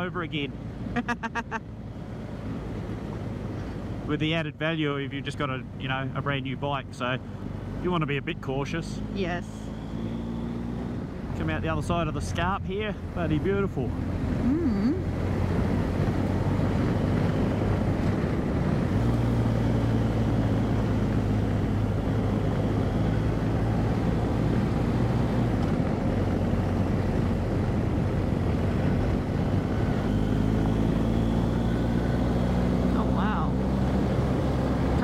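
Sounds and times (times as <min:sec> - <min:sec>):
motorcycle engine cruising: 0:00.0 - 0:35.0
wind noise: 0:14.0 - 0:32.8.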